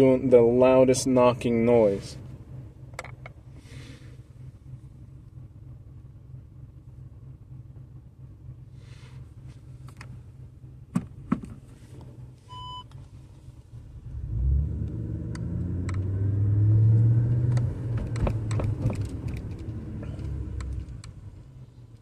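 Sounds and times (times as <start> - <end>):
car low rumble: 0.0 - 22.0
suspension knocks and clicks: 10.9 - 12.1, 17.4 - 21.2
short beep: 12.5 - 12.9.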